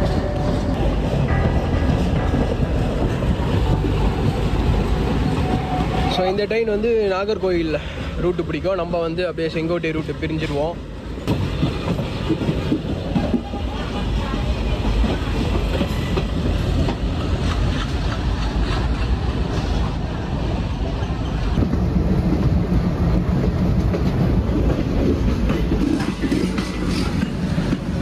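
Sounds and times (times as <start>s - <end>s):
train rumble: 0.0s - 28.0s
train wheels clattering over rail joints: 23.5s - 28.0s.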